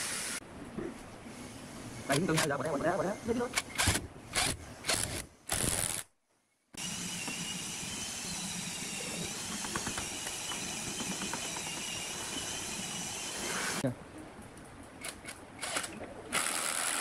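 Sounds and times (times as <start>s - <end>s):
background hiss: 0.0s - 6.7s
power driver driving screw: 3.5s - 6.0s.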